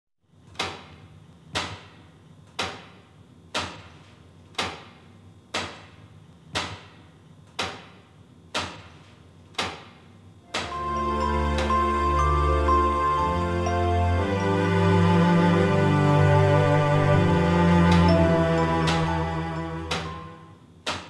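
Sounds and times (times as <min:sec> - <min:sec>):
music: 0:10.5 - 0:20.6.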